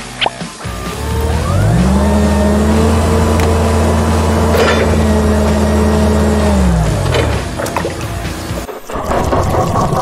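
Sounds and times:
toy crane electric motor whining: 0.7s - 6.9s.

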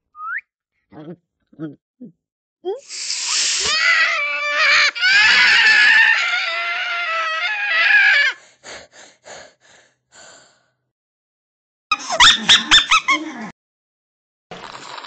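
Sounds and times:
cartoon cat high-pitched scream: 2.9s - 8.4s.

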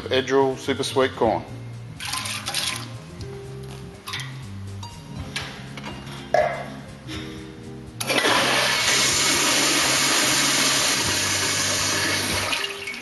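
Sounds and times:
toilet flushing: 8.0s - 13.0s.

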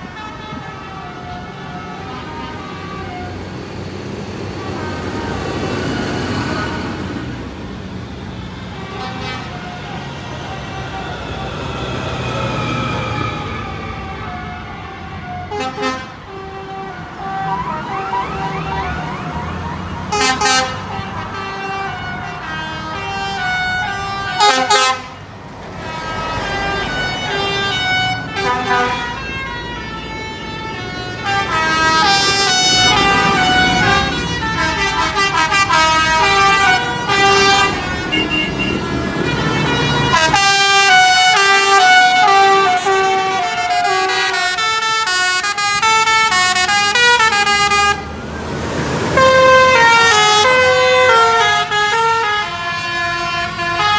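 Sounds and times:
tractor engines driving past: 0.0s - 53.9s
horns tooting: 8.0s - 13.2s, 15.4s - 48.1s, 49.2s - 53.9s
held horn notes: 8.4s - 13.7s, 15.5s - 48.1s, 49.1s - 53.9s.

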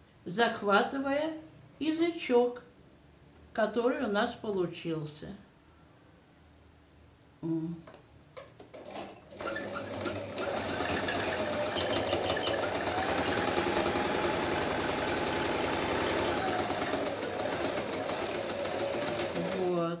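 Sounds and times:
sewing machine stitching: 8.8s - 20.0s.

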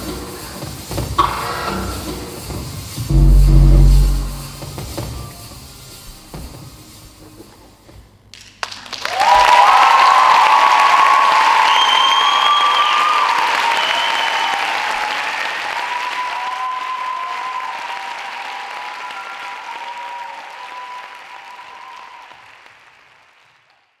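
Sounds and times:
audience applauding: 8.6s - 24.0s
audience cheering: 9.1s - 22.4s.

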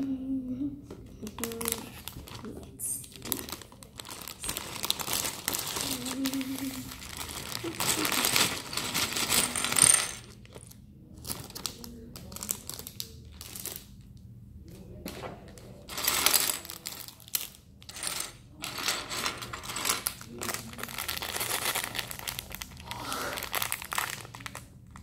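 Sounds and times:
plastic pieces clattering on a table: 3.2s - 10.6s, 15.1s - 25.0s.

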